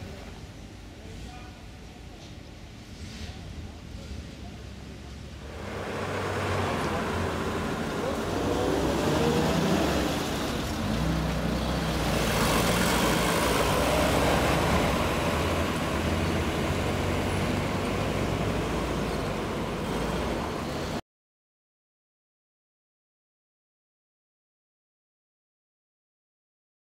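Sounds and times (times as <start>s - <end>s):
road noise: 0.0s - 21.0s
vehicle engines driving past: 2.8s - 21.0s.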